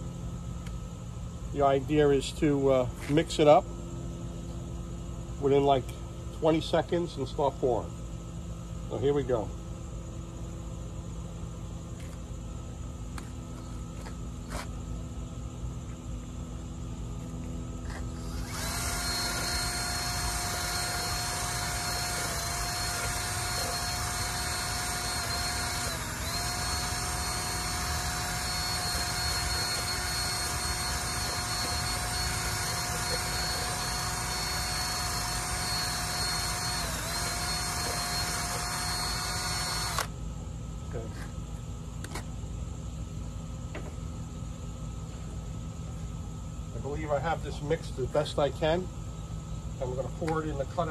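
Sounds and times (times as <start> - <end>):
drill mixer whining: 17.9 - 40.1.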